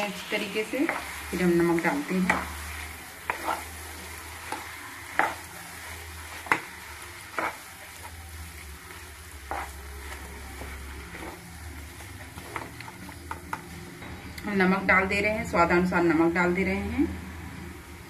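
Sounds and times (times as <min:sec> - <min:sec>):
spatula mashing potatoes in pan: 0:00.0 - 0:13.8
oil sizzling: 0:00.0 - 0:18.0.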